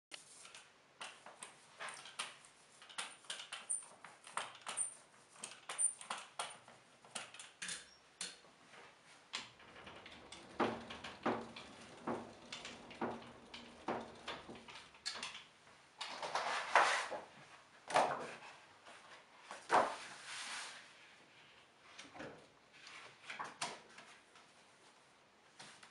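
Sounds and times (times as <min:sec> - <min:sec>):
printing press clicks and knocks: 0:09.4 - 0:16.3.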